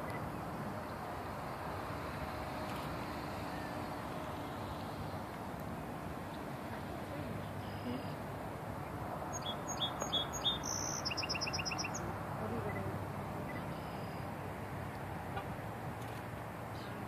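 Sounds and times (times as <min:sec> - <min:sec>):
outdoor background noise: 0:00.0 - 0:17.0
small bird chirping: 0:09.3 - 0:12.0.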